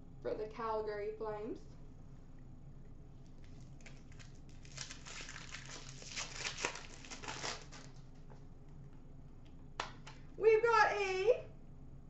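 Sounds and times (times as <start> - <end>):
foil wrapper tearing: 3.4 - 8.0
foil wrapper crinkling: 3.4 - 8.1.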